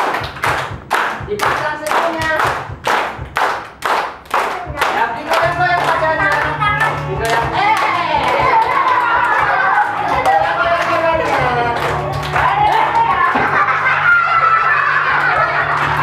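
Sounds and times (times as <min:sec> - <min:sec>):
children clapping hands: 0:00.0 - 0:16.0
voices singing together: 0:06.9 - 0:15.6.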